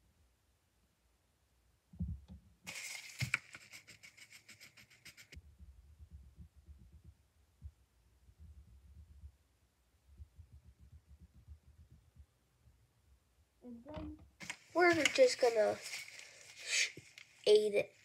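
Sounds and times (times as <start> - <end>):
pencil and hand rubbing paper: 2.7 - 5.4, 14.4 - 17.8
pencil scribbling on paper: 3.5 - 5.4
soft knocks of pencils: 13.9 - 16.2.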